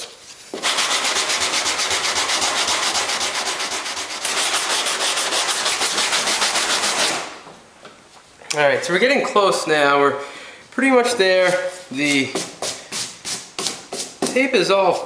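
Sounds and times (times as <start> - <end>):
sandpaper scrubbing fiberglass: 0.5 - 7.4, 11.6 - 15.0.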